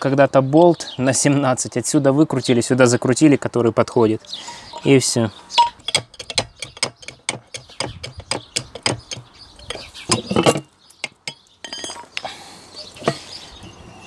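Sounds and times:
metal tool clicking on metal: 5.6 - 12.0
metal tool scraping: 5.6 - 12.2.

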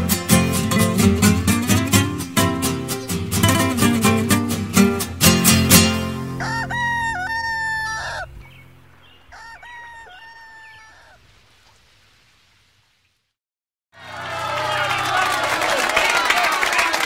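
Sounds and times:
acoustic guitar strummed chords: 0.0 - 6.4
rooster crowing: 6.3 - 8.4, 9.2 - 11.2, 14.0 - 15.8.

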